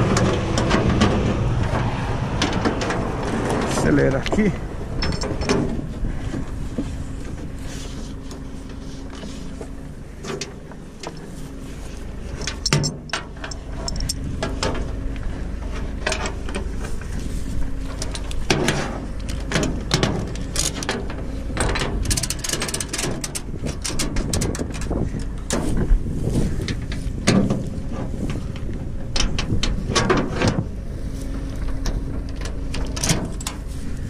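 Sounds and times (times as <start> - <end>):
metallic clanks and knocks: 0.0 - 6.5, 12.4 - 15.0, 17.9 - 25.9, 26.6 - 30.7, 31.6 - 33.7
truck engine at raised revs: 0.0 - 34.0.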